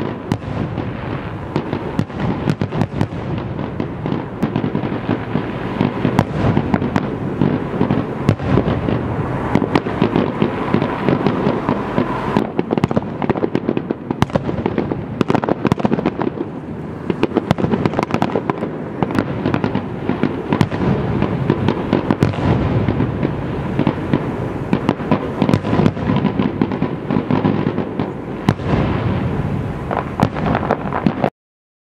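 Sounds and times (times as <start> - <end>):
fireworks bursting: 0.0 - 31.3.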